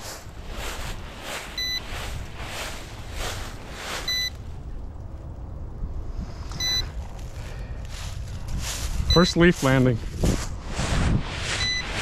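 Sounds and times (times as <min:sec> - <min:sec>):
short electronic warning beeps: 0:01.6 - 0:01.9, 0:04.1 - 0:04.3, 0:06.6 - 0:06.8, 0:09.1 - 0:09.4, 0:11.6 - 0:12.0.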